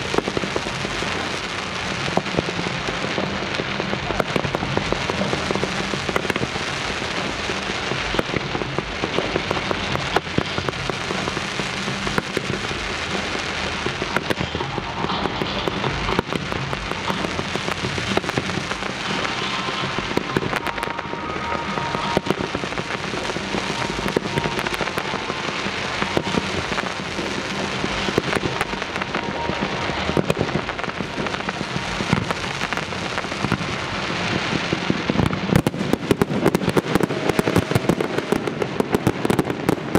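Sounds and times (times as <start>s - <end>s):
fireworks fountains hissing: 0.0s - 39.9s
sharp firework pops: 2.0s - 39.9s.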